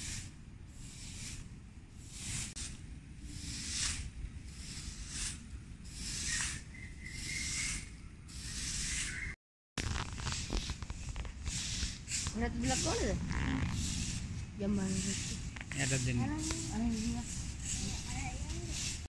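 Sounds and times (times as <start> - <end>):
broom sweeping leaves: 0.0 - 19.0
leaves crackling: 9.8 - 19.0.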